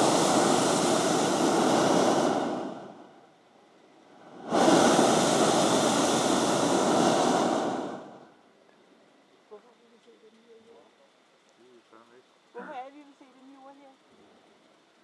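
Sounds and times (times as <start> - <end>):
propane burner blasts: 0.0 - 8.5.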